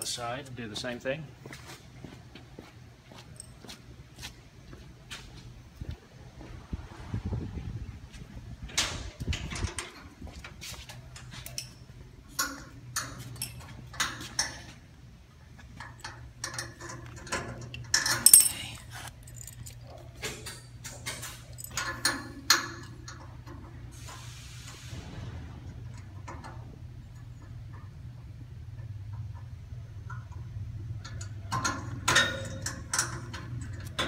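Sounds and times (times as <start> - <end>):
steady low hum: 0.0 - 34.0
metallic clicks and clinks: 11.1 - 14.6, 15.8 - 23.3.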